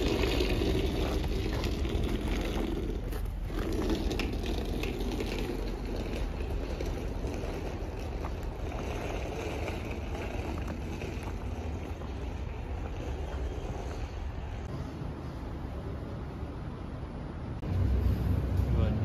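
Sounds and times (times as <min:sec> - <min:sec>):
wind rumbling on microphone: 0:00.0 - 0:14.7
steady outdoor hum: 0:00.0 - 0:19.0.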